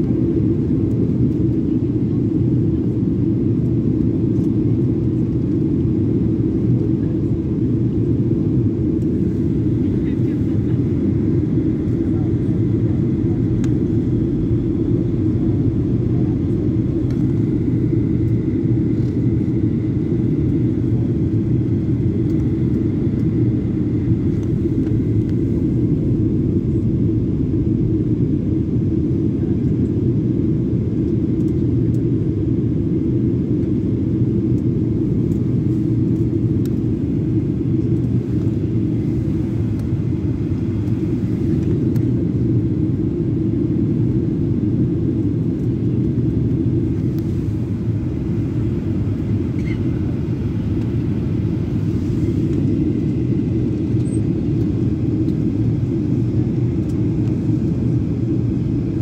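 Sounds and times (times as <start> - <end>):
jet engine cabin rumble: 0.0 - 59.0
faint high whine: 54.0 - 54.4.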